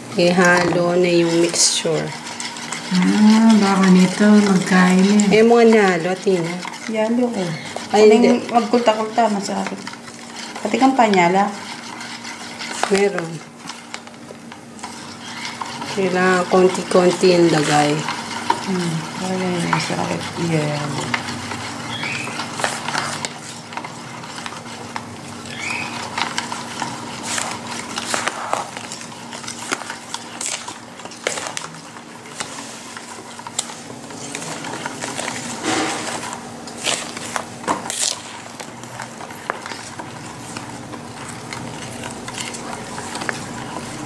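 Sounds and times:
spoon scraping metal bowl: 0:00.1 - 0:14.2, 0:14.8 - 0:31.7.

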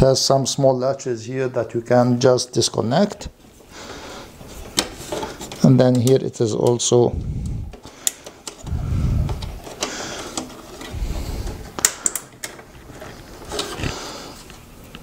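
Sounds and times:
heavy breathing: 0:03.6 - 0:05.5, 0:07.1 - 0:12.4, 0:13.0 - 0:14.6.

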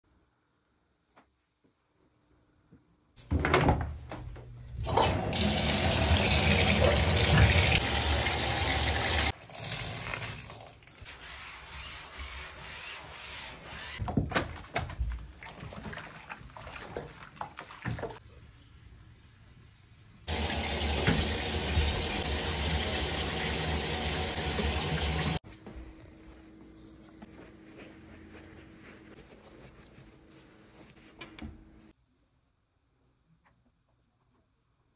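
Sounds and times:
tap running into bathtub: 0:04.9 - 0:10.4, 0:20.3 - 0:25.3
scrubbing in soapy water: 0:10.0 - 0:14.0, 0:15.2 - 0:18.2, 0:27.1 - 0:31.2
small water splashes: 0:15.3 - 0:18.2.

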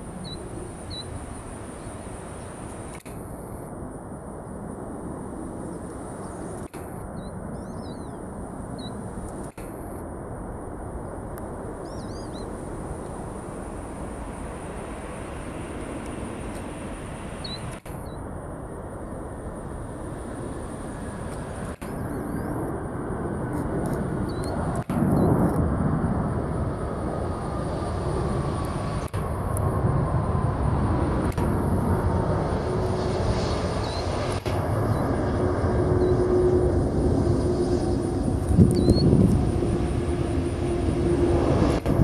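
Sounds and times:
jet engine rush: 0:00.0 - 0:42.0
bird chirps: 0:07.2 - 0:08.2, 0:11.8 - 0:12.5, 0:17.4 - 0:18.2, 0:24.3 - 0:24.6, 0:38.7 - 0:39.1.

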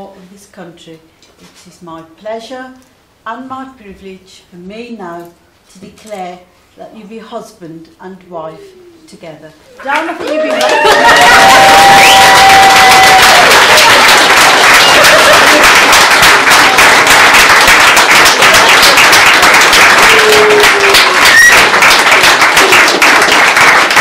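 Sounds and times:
crowd clapping: 0:09.8 - 0:24.0
people cheering: 0:09.8 - 0:24.0.

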